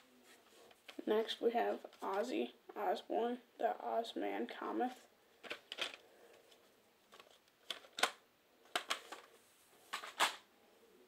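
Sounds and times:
cd case clicking and rattling: 5.4s - 6.0s, 7.1s - 9.3s, 10.0s - 10.4s
cd case snapping: 5.4s - 6.0s, 7.1s - 9.3s.

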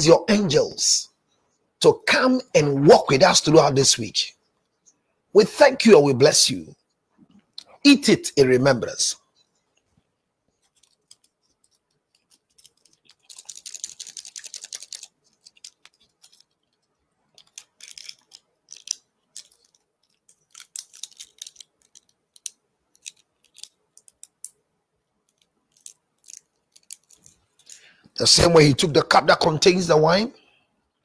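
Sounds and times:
bread being crunched and chewed: 10.6s - 24.3s.

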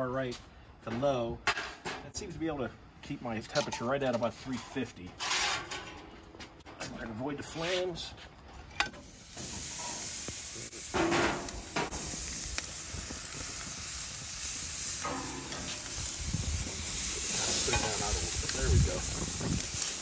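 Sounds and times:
chicken sizzling on grill: 8.8s - 20.0s.

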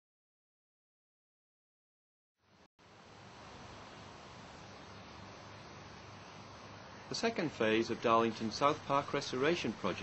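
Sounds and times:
faint steady hiss: 2.4s - 10.0s.

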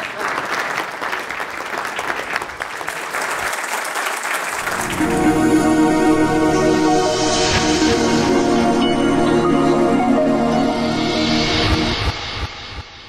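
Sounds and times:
audience applauding: 0.0s - 5.4s
music: 4.6s - 13.0s.

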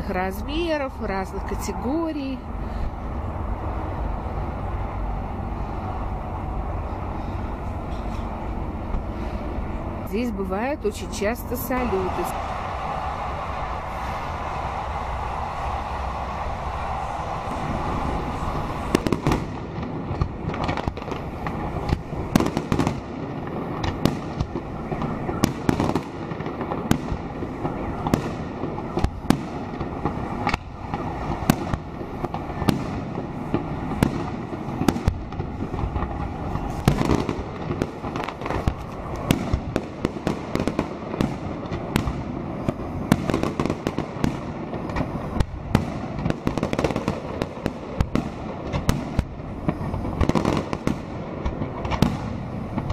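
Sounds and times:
fireworks bursting: 0.0s - 52.9s
fireworks crackling: 0.0s - 52.9s.

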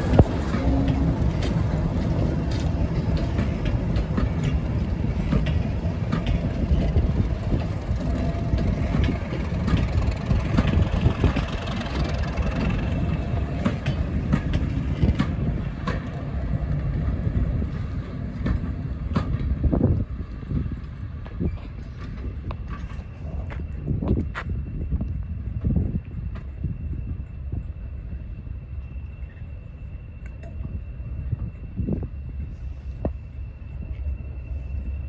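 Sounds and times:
wheels clicking over rail joints: 0.0s - 24.4s
diesel locomotive engine: 0.0s - 35.0s
train coaches rumbling: 0.0s - 35.0s.

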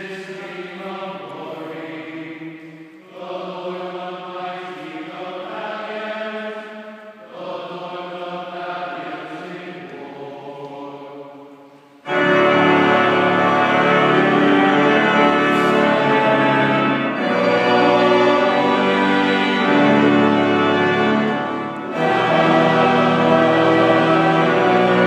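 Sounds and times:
organ playing sustained chords: 12.0s - 25.0s.

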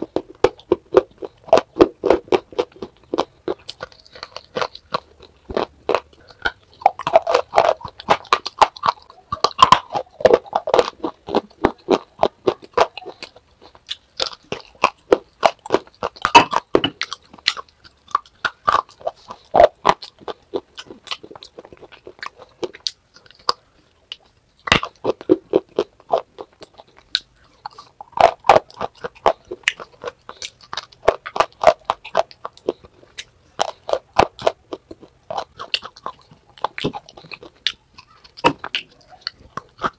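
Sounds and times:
gritty chewing: 0.0s - 39.9s
crunching hard clay: 24.6s - 39.9s.

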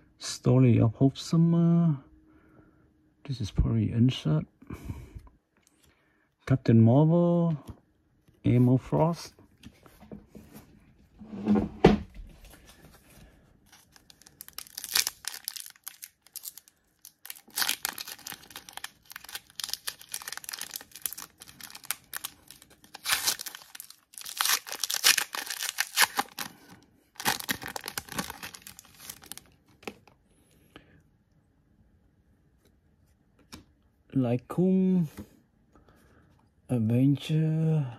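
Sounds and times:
card pack wrapper tearing and crinkling: 13.6s - 30.1s.

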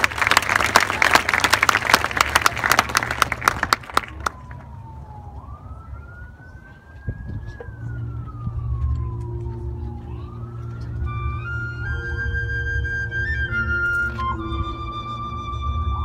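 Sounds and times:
rising flute notes: 4.1s - 16.0s
synthesized siren wail: 4.1s - 16.0s.

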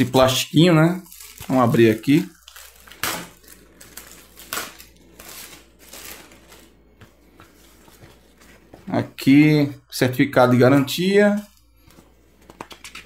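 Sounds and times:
plastic wrap crinkling: 0.0s - 9.1s.

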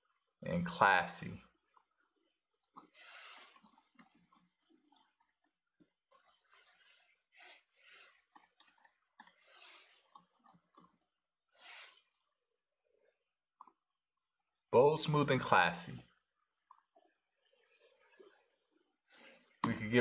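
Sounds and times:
soft breaths: 2.8s - 5.2s, 6.1s - 12.3s
computer keyboard typing: 3.4s - 5.1s, 6.1s - 6.8s, 8.3s - 9.4s, 10.0s - 11.1s.

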